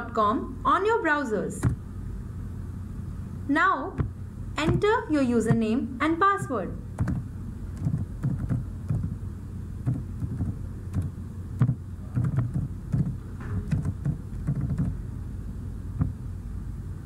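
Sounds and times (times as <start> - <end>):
steady low hum: 0.0 - 17.0
keyboard keystrokes: 13.7 - 14.9.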